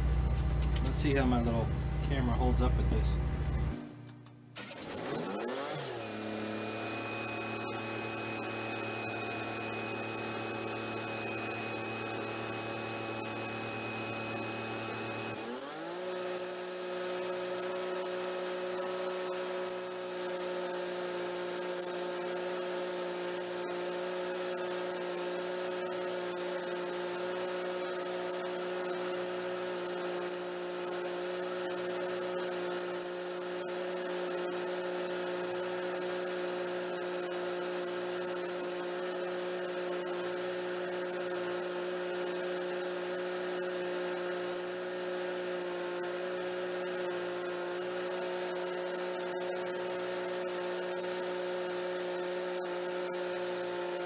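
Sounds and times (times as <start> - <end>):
generator engine drone: 0.0 - 15.6.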